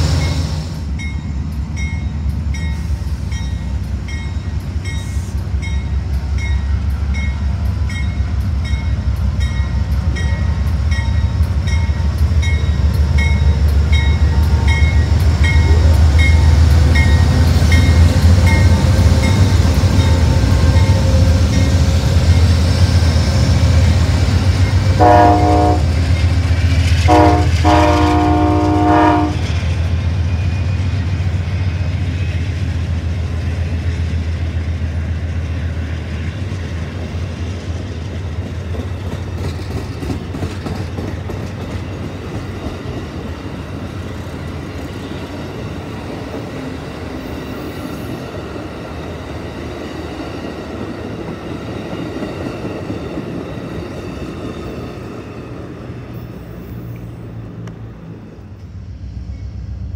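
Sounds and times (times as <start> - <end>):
train cars clickety-clack: 0.0 - 59.9
train horn chord: 24.8 - 26.0, 27.0 - 29.5.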